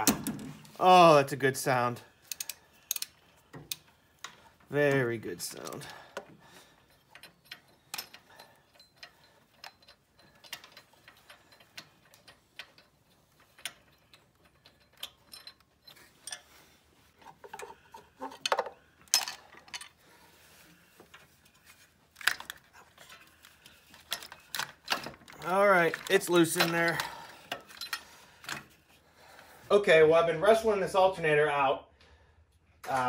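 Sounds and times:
sharp metal clicks: 2.2s - 4.4s
ratchet wrench clicking: 2.3s - 3.8s.

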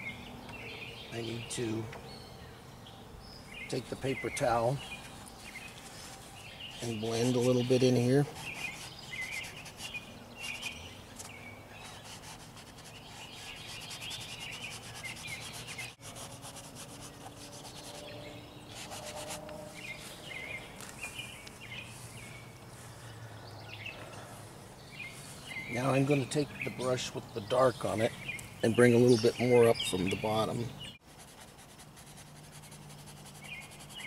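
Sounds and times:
birds chirping: 0.0s - 34.0s
paper towel rubbing canvas: 5.8s - 18.1s.

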